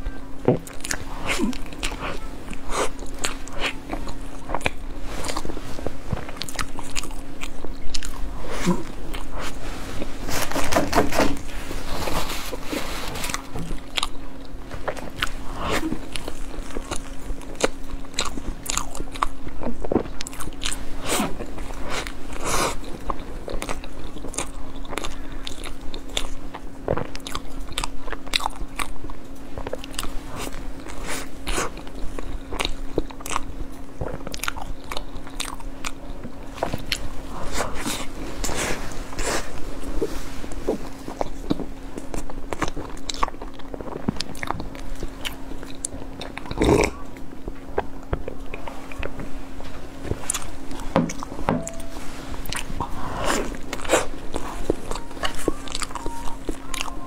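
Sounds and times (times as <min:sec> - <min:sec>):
faint steady hum: 0:00.0 - 0:57.0
chewing crunchy bread: 0:00.1 - 0:57.0
wet mouth sounds: 0:00.4 - 0:10.7.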